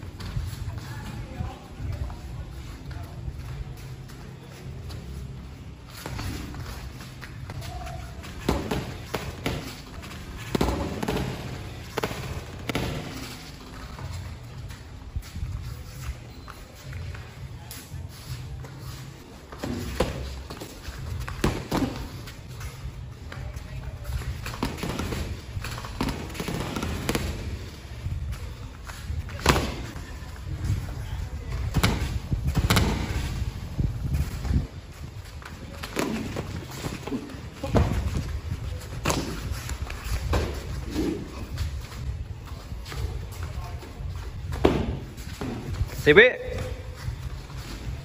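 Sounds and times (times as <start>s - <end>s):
boxing gloves smacking: 31.7s - 33.3s, 38.9s - 40.8s.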